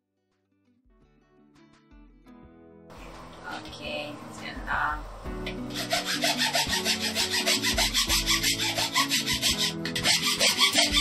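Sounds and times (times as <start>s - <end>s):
hacksaw cutting branch: 5.5s - 11.0s.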